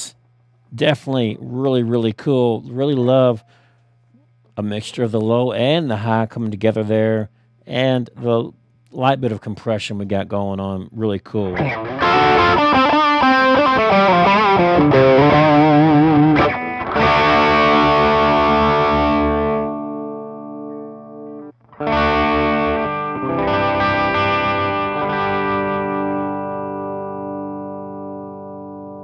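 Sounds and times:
distorted electric guitar: 11.5s - 29.0s.

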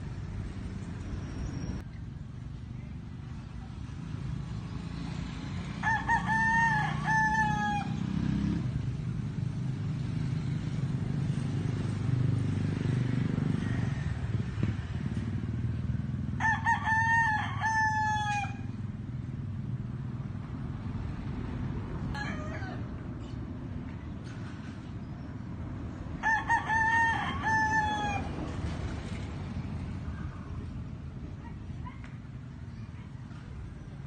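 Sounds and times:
rooster crowing: 5.8s - 8.0s, 16.4s - 18.7s, 22.1s - 23.0s, 26.2s - 28.3s.

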